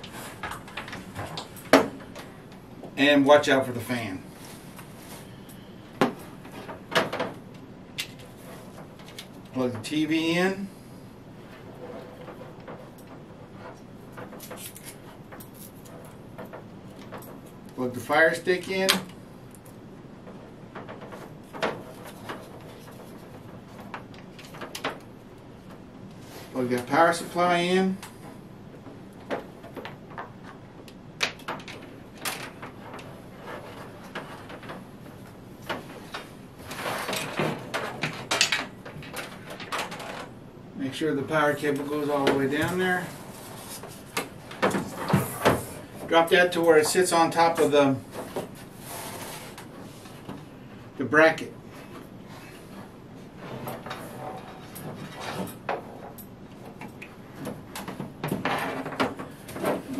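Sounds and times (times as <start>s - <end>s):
cables being handled: 0.0s - 3.0s, 11.3s - 40.5s
scraping rustle: 32.4s - 38.4s, 41.3s - 50.7s.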